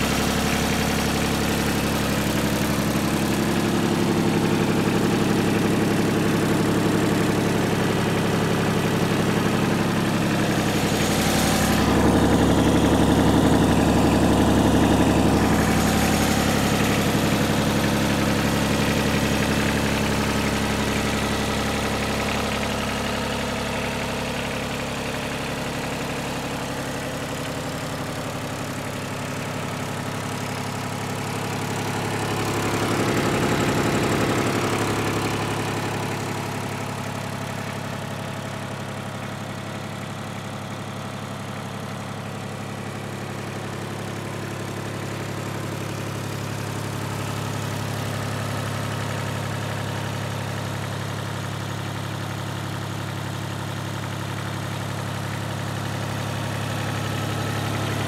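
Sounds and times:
tractor diesel engine idling: 0:00.0 - 0:58.0.

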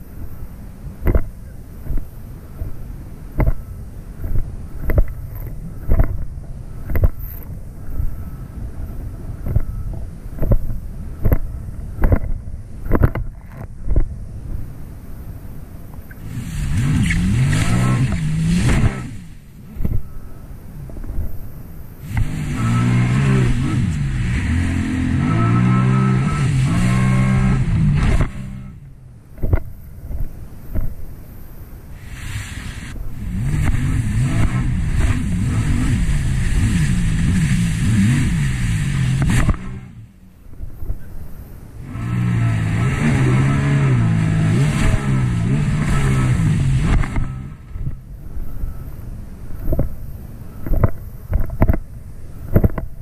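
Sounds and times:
wind on microphone: 0:00.0 - 0:53.0
water rushing past hull: 0:14.2 - 0:48.6
jet ski engine revving: 0:16.2 - 0:20.4, 0:22.0 - 0:29.7, 0:32.0 - 0:40.3, 0:41.7 - 0:52.8.

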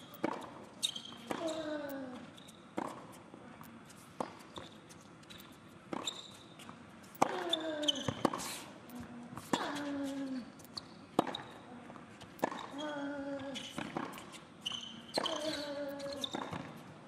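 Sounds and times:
tennis ball bounces: 0:00.0 - 0:01.8, 0:02.7 - 0:04.7, 0:05.8 - 0:10.2, 0:11.1 - 0:11.6, 0:12.2 - 0:14.4.

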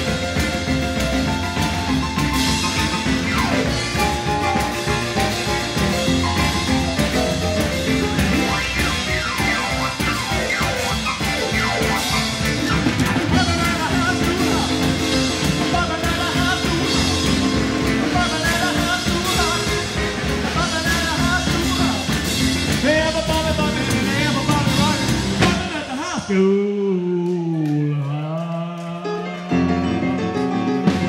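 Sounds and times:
rock and roll band with piano: 0:00.0 - 0:31.0
man singing: 0:13.1 - 0:30.4.

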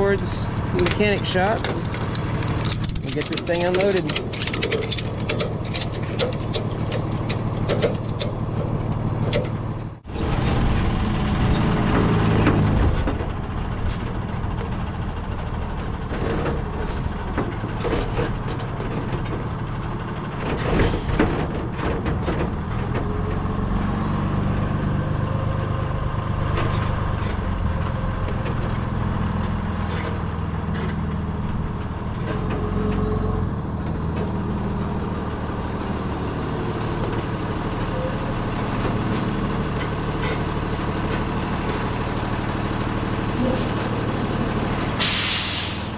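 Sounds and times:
tow truck engine running: 0:00.0 - 0:45.9
ratchet strap clicking: 0:00.9 - 0:08.3.

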